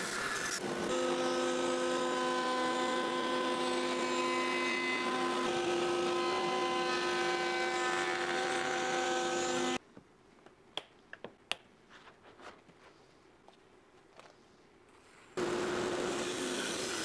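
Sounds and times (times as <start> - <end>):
router whining while cutting wood: 0.8 - 9.8.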